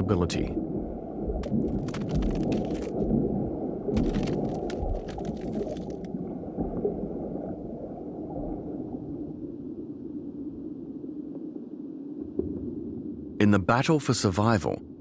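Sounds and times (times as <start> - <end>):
low underwater rumble: 0.6 - 13.4
sharp crackling clicks: 1.4 - 3.1, 3.9 - 6.2.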